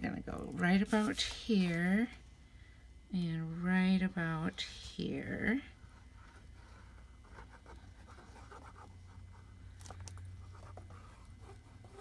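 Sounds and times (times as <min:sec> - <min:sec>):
low steady hum: 0:00.0 - 0:12.0
paper scratching and rustling: 0:06.0 - 0:09.5, 0:10.4 - 0:12.0.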